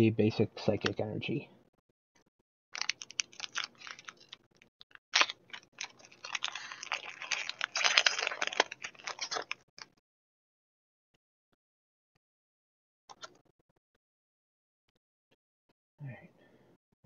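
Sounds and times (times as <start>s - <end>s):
foil wrapper crinkling: 2.8s - 9.9s.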